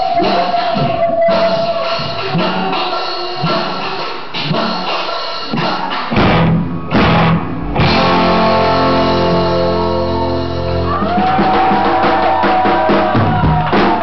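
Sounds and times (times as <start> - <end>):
rock guitar chords: 5.9 - 11.8.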